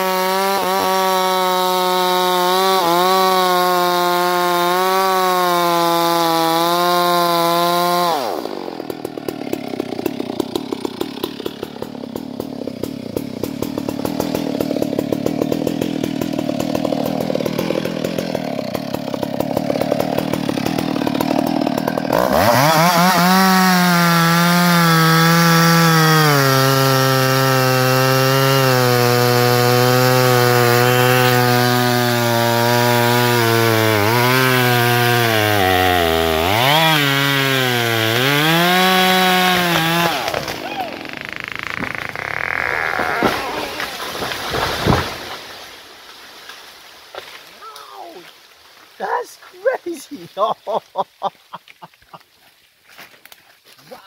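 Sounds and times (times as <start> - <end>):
chainsaw cutting tree trunk: 0.0 - 47.8.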